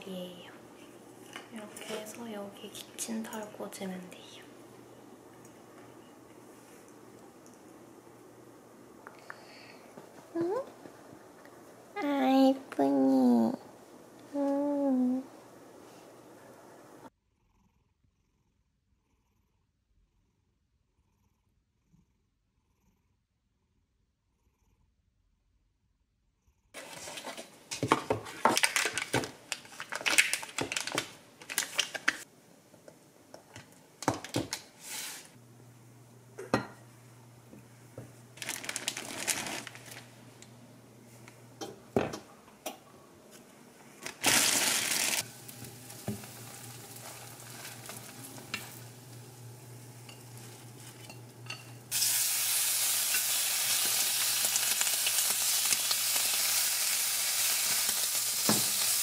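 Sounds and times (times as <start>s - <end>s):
kitchen items clattering: 26.8s - 32.2s, 38.4s - 40.0s
bacon sizzling in a frying pan: 44.1s - 59.0s.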